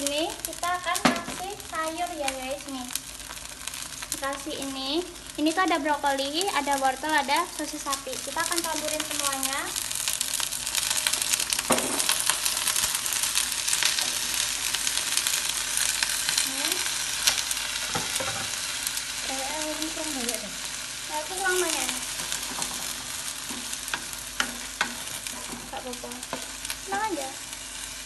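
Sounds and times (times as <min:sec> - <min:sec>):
oil sizzling in a wok: 0:00.0 - 0:28.0
spatula stirring pan: 0:10.0 - 0:28.0.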